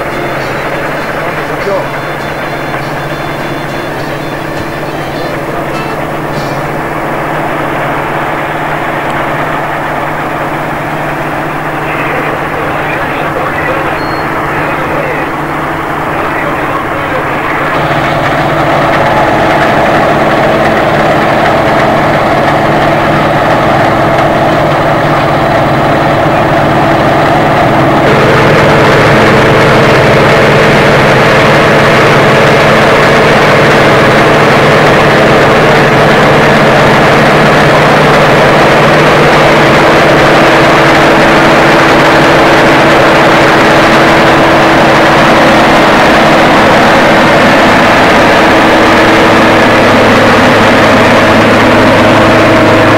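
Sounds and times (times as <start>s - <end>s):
combine harvester running: 0.0s - 52.9s.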